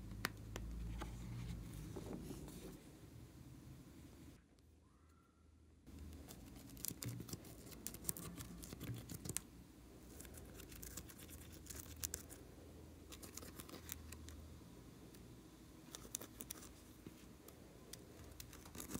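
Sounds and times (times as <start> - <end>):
spatula scratching eyeshadow: 6.0 - 9.5, 10.1 - 12.4, 18.2 - 18.9.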